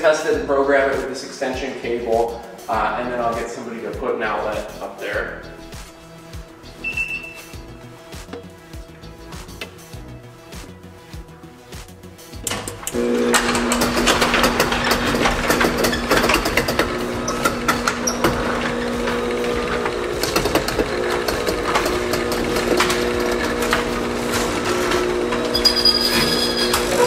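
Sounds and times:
garage door motor humming: 0:12.3 - 0:27.0
garage door rattling and clicking: 0:12.4 - 0:27.0.

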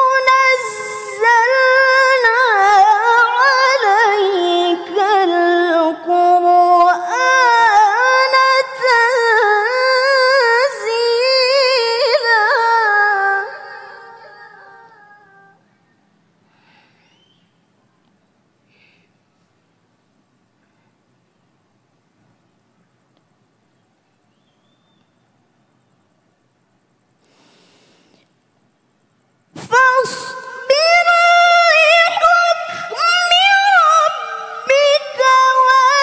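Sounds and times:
woman chanting: 0:00.0 - 0:15.6, 0:29.6 - 0:36.0.

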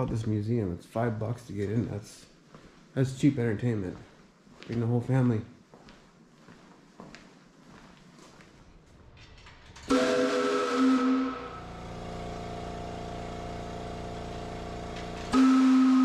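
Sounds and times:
chime whistle blowing: 0:09.9 - 0:11.7, 0:15.3 - 0:16.0.

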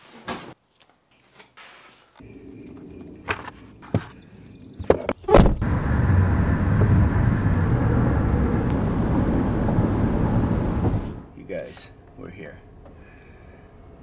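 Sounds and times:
car cabin road and engine noise: 0:04.6 - 0:13.0.

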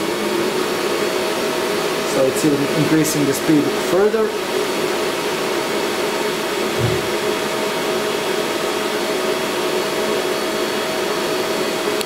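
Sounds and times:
cooling fans running at high speed: 0:00.0 - 0:12.0.

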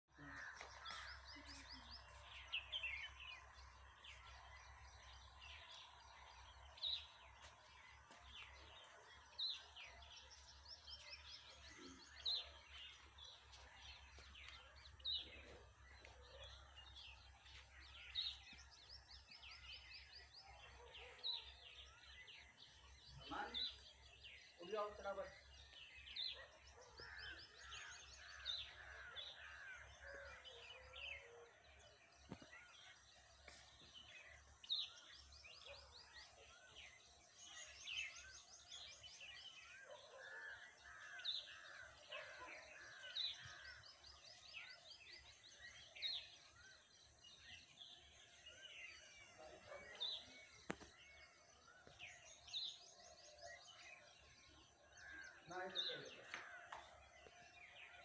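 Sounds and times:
faint birdsong: 0:00.0 - 0:58.0.

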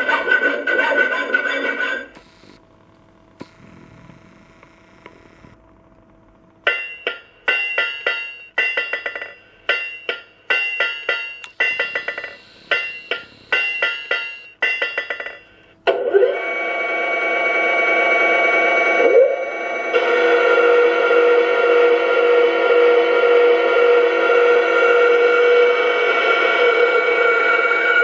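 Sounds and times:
steady hissing whine: 0:00.0 - 0:15.8, 0:16.5 - 0:28.0
hammer blows ringing on anvil: 0:06.7 - 0:15.5.

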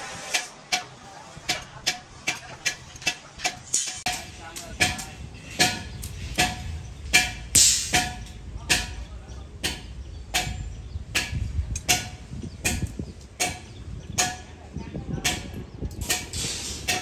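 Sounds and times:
hammer striking steel: 0:00.0 - 0:14.6, 0:15.2 - 0:17.0.

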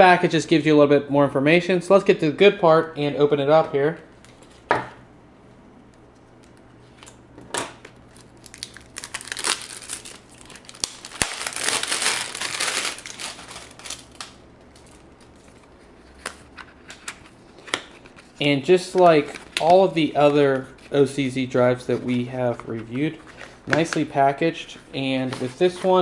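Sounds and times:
tape seal crinkling and crackling: 0:07.8 - 0:20.8.

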